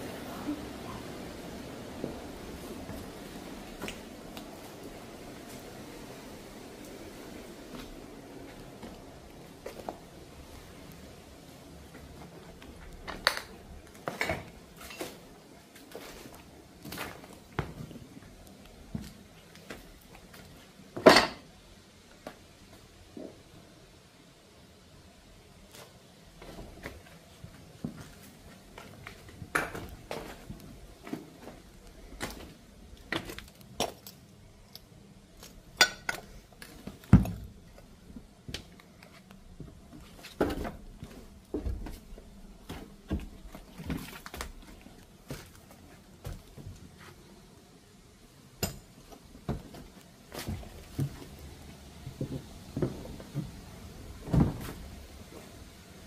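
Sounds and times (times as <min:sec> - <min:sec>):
footsteps crunching over rubble: 0:06.8 - 0:20.8, 0:25.6 - 0:47.3, 0:49.2 - 0:55.6.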